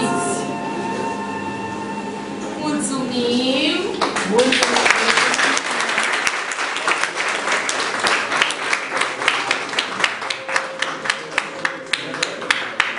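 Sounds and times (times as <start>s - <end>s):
audience applauding: 4.0s - 12.9s.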